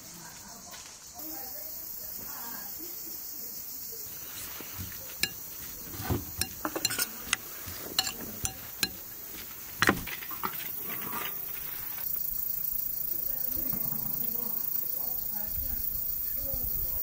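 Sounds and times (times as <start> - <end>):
metal spoon clinking on glass bowl: 5.2 - 5.4, 6.4 - 7.1, 8.0 - 9.0.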